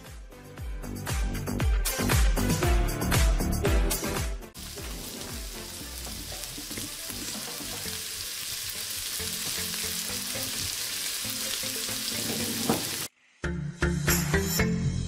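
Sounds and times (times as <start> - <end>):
onions sizzling in hot oil: 4.6 - 13.1.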